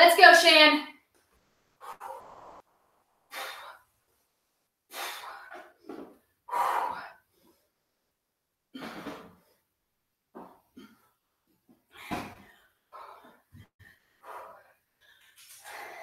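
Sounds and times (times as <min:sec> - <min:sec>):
woman breathing hard: 0:03.3 - 0:03.9, 0:06.4 - 0:07.7, 0:11.9 - 0:16.0.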